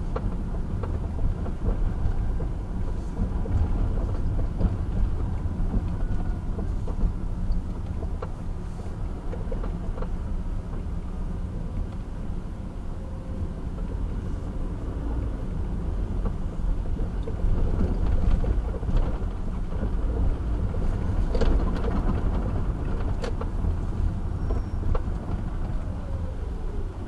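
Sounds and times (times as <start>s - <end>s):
car engine and road rumble: 0.0s - 27.0s
knocks and rattles from bumps: 17.0s - 23.8s.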